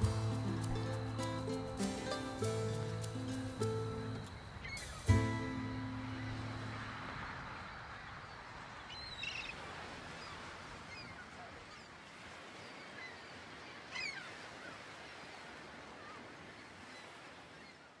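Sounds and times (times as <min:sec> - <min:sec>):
steady outdoor hiss: 0:00.0 - 0:17.5
faint bird chirps: 0:02.9 - 0:06.9.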